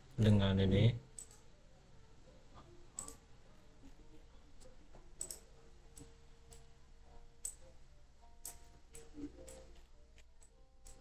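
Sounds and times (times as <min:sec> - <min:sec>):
faint low hum: 0:00.0 - 0:11.0
computer mouse clicks: 0:02.9 - 0:03.2, 0:04.6 - 0:06.7.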